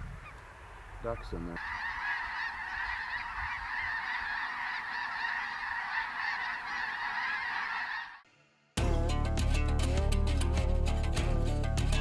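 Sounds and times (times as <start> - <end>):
flock of geese honking: 1.1 - 8.2.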